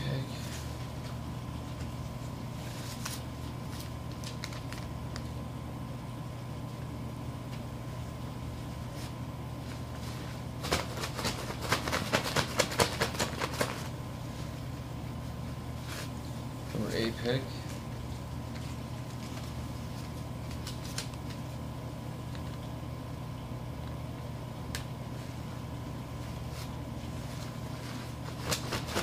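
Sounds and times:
steady low hum: 0.0 - 29.0
paper slips rustling in a bag: 27.9 - 29.0.

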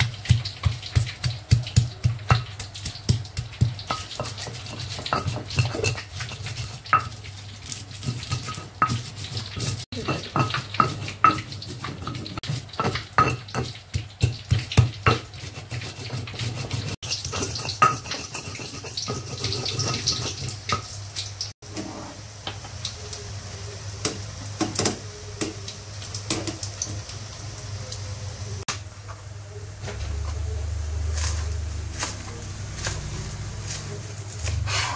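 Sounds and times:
stone pestle knocking in mortar: 0.3 - 6.0
stone pestle grinding with gritty scraping: 0.6 - 20.5.

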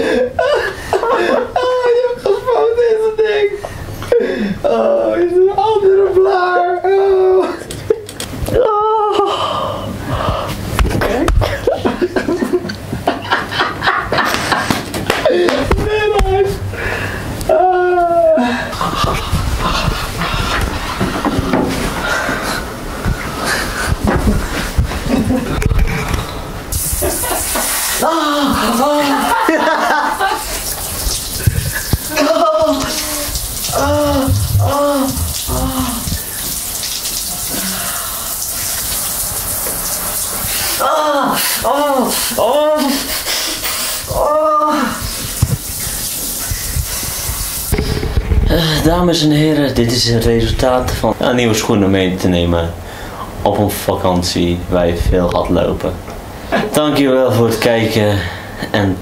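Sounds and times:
shower water running: 10.2 - 51.9
man panting: 21.9 - 24.8
man groaning: 28.0 - 29.4, 32.1 - 36.2, 40.8 - 43.1, 44.1 - 45.0
person making short sounds: 32.0 - 36.3.

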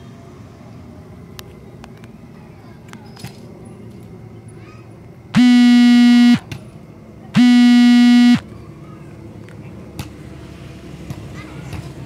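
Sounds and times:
buzzy electric horn blasts: 5.4 - 6.5, 7.4 - 8.4.

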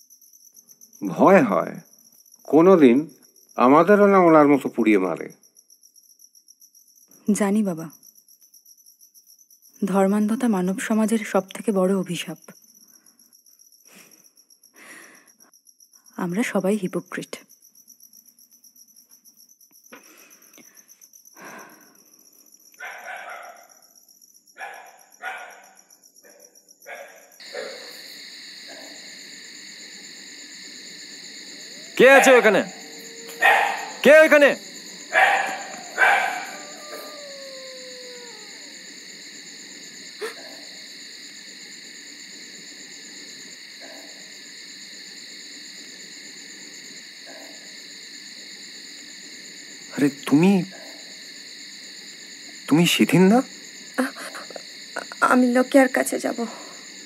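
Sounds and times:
crickets chirping: 0.0 - 57.0
insects trilling: 0.0 - 57.0
dogs barking and yelping: 22.8 - 23.8, 24.6 - 28.0, 31.4 - 39.0.

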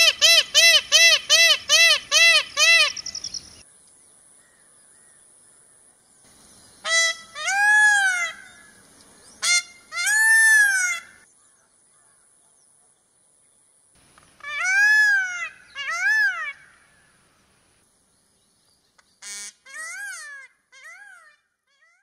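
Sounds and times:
peacock calling: 0.0 - 3.7, 6.8 - 11.3, 14.2 - 17.3, 19.2 - 22.0.

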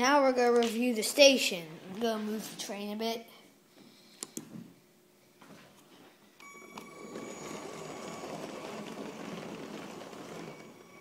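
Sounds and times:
electric motor whine: 6.4 - 11.0
wheels and gears rattling: 6.4 - 11.0.

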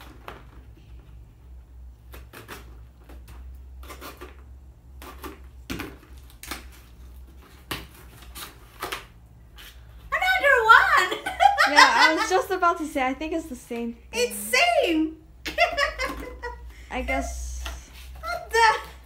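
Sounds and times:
scissors cutting tape and cardboard: 2.0 - 9.8.

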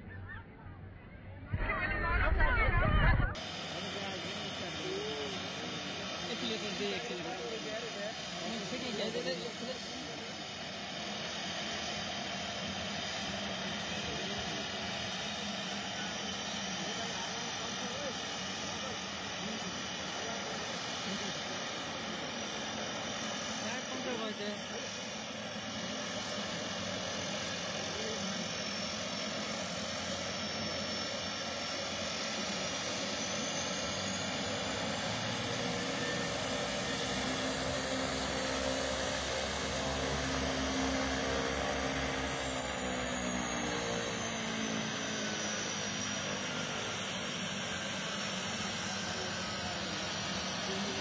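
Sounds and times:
propeller drone: 0.0 - 51.0
turbine whine: 0.0 - 51.0.

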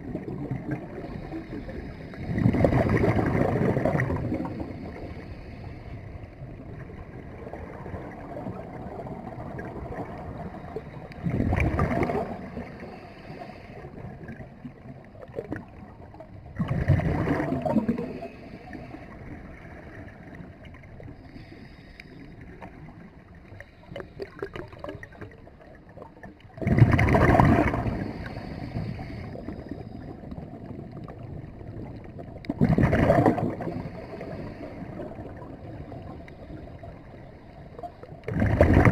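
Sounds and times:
steady underwater rush: 0.0 - 38.9
exhaled bubbles rushing: 2.2 - 4.9, 6.6 - 12.7, 14.2 - 18.4, 26.0 - 28.5, 30.3 - 34.2, 38.2 - 38.9.

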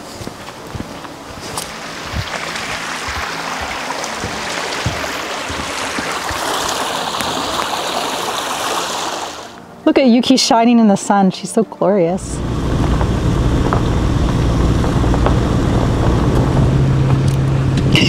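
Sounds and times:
rushing stream water: 0.0 - 9.8.

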